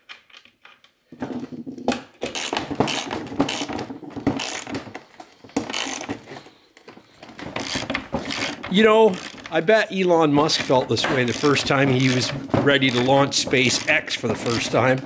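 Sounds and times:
ratchet wrench clicking rapidly: 2.3s - 3.8s, 4.4s - 4.7s, 5.7s - 6.1s, 7.6s - 9.5s, 10.5s - 12.3s.

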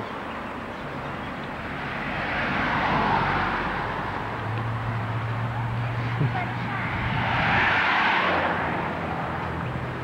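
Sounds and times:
low steady engine hum: 0.0s - 10.0s
car passing on highway: 0.5s - 10.0s.

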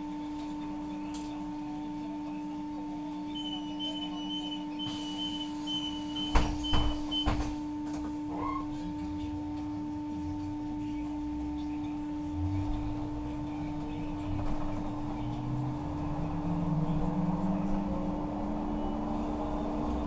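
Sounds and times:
bus engine drone: 0.0s - 20.0s
door warning beeper: 3.4s - 7.6s
bus doors shutting: 3.4s - 9.0s, 12.2s - 20.0s.

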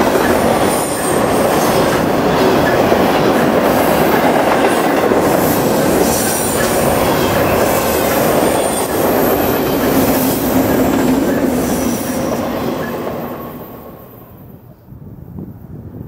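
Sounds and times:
train wheels rumbling on rail: 0.0s - 16.0s
high wheel squeal: 5.4s - 13.8s.

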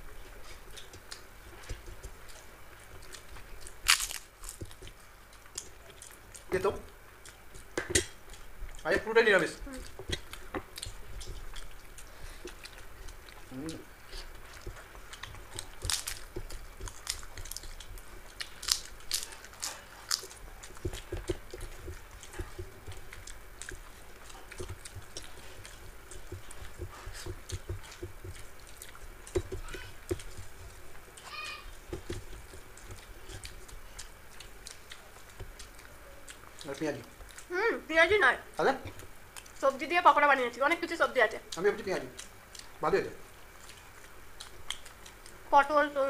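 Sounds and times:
people chewing and crunching: 0.0s - 40.0s, 40.6s - 46.0s
fingers squishing rice: 10.0s - 37.5s.

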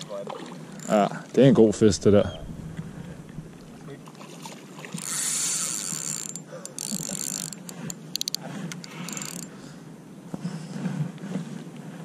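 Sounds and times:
fishing reel ratcheting: 0.8s - 1.0s, 4.9s - 9.5s.

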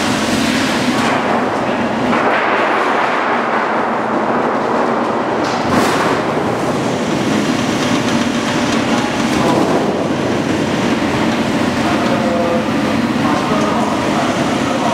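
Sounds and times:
sheet metal cutting line running: 0.0s - 14.9s.

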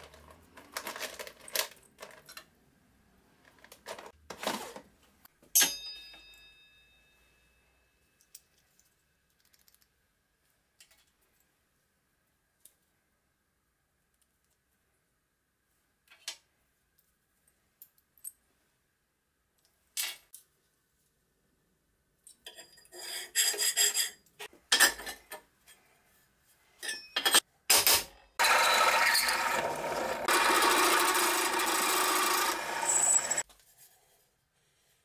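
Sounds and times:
steel pieces scraped on worktable: 22.5s - 24.5s, 31.5s - 33.4s
drill press boring into steel: 28.4s - 33.4s.

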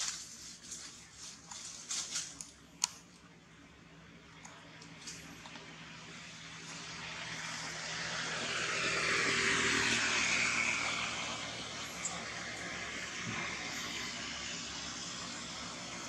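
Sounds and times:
passing engine rushing: 5.8s - 16.0s.

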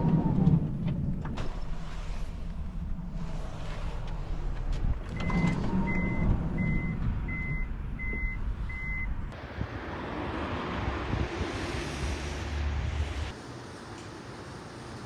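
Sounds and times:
steady rushing noise: 9.4s - 13.4s.

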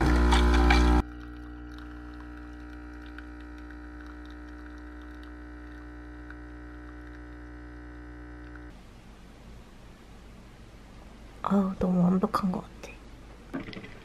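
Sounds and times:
espresso machine pump humming: 0.0s - 8.8s.

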